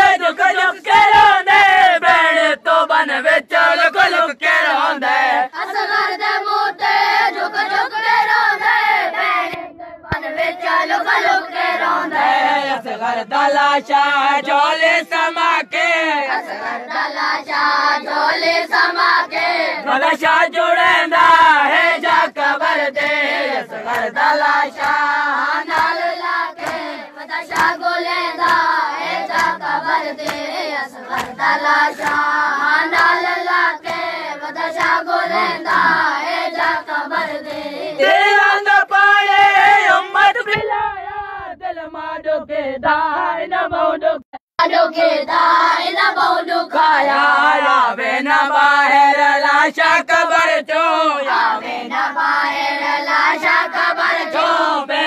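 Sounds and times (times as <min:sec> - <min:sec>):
group chanting: 0:00.0 - 0:55.0
hand slaps on chest: 0:23.9 - 0:24.2, 0:24.8 - 0:25.0, 0:25.7 - 0:26.0, 0:26.6 - 0:26.9, 0:27.5 - 0:27.8, 0:28.4 - 0:28.7, 0:29.3 - 0:29.6, 0:30.2 - 0:30.5, 0:31.1 - 0:32.3, 0:33.8 - 0:34.1, 0:34.8 - 0:36.0.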